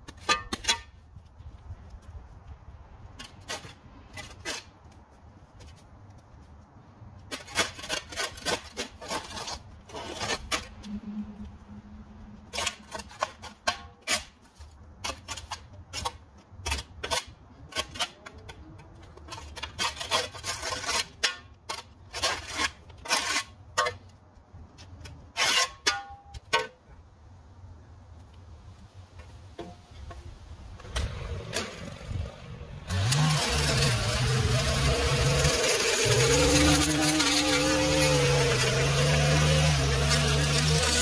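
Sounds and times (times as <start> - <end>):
rasping scrapes: 7.3 - 11.6, 12.4 - 24.0, 32.9 - 41.0.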